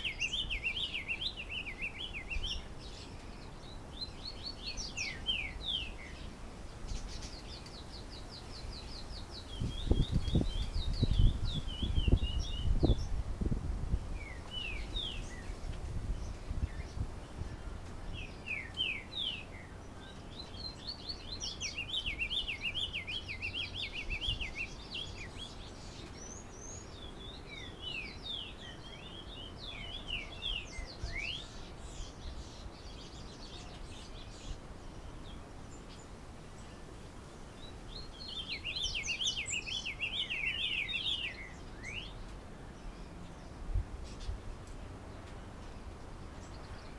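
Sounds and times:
bird singing chattering notes: 0.0s - 6.0s.

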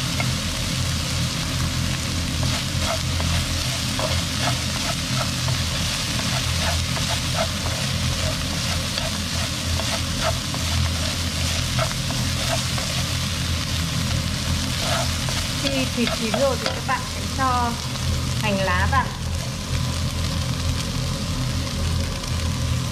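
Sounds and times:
meat sizzling in a wok: 0.0s - 22.9s
steady low hum: 0.0s - 22.9s
wooden utensils scraping: 2.4s - 13.2s, 14.7s - 17.0s.

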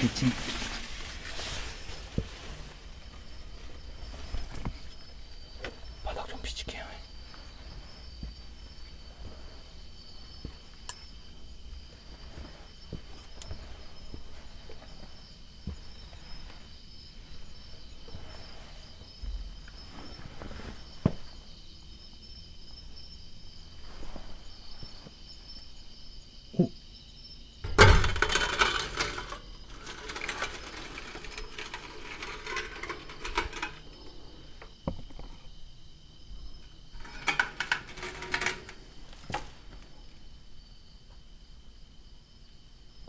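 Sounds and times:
rustling and scraping: 0.0s - 6.4s, 7.0s - 25.9s, 27.6s - 40.4s
high insect trill: 0.0s - 43.0s.

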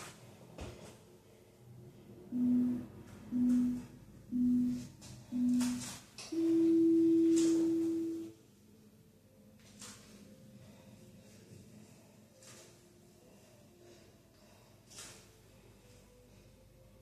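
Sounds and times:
interval timer beeping: 2.3s - 8.3s.

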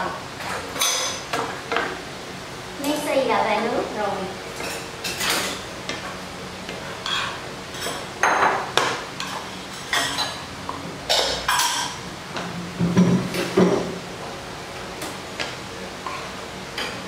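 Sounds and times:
metal spoon scraping frying pan: 6.9s - 8.0s.

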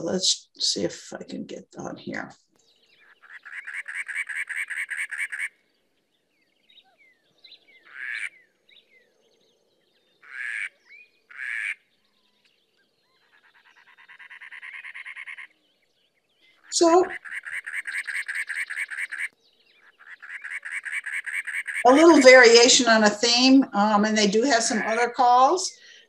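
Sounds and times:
faint bird chirps: 2.5s - 22.8s
wren chugging song: 3.0s - 5.5s, 16.6s - 26.0s.

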